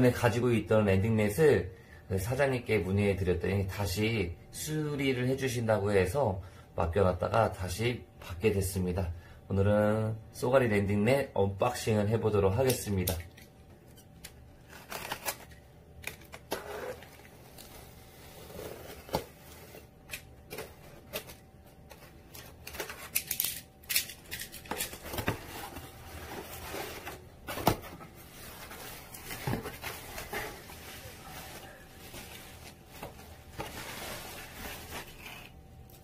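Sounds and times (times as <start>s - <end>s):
bubble wrap rustling: 24.4s - 35.6s.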